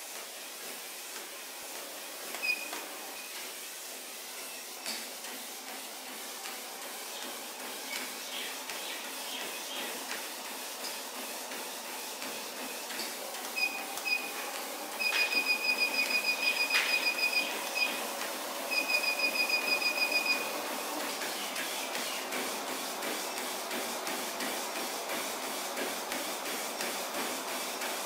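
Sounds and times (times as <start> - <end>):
treadmill motor and belt running: 0.0 - 28.0
footfalls on treadmill deck: 4.8 - 28.0
short high beeps: 18.7 - 20.5.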